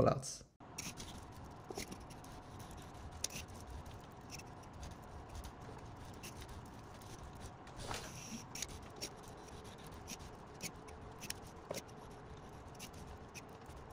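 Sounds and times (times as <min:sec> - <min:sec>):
robot arm motors clicking: 0:08.1 - 0:13.9.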